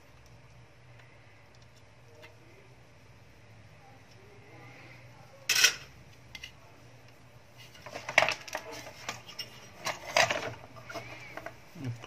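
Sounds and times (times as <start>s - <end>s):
faint low hum: 0.0s - 12.0s
tools clattering on workbench: 5.5s - 6.5s, 7.8s - 11.5s.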